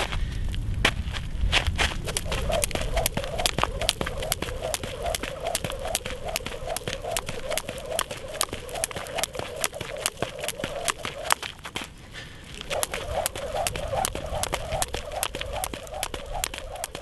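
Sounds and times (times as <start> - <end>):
jump rope ticking on gravel: 0.0 - 17.0.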